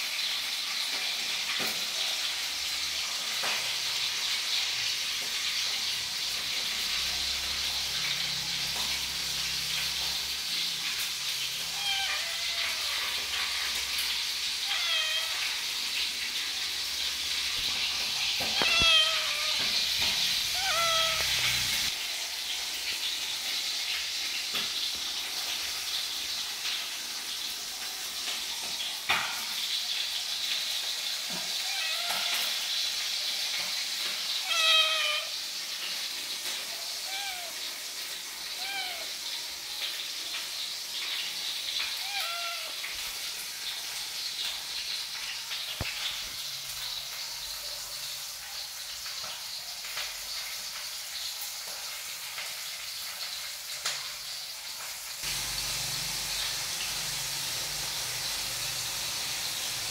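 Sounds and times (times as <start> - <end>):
kitten meowing: 11.6 - 13.3, 14.6 - 15.6, 18.2 - 21.9, 31.6 - 32.5, 34.4 - 35.4, 37.0 - 37.6, 38.6 - 39.1, 42.0 - 42.9
faint hiss: 53.7 - 59.9.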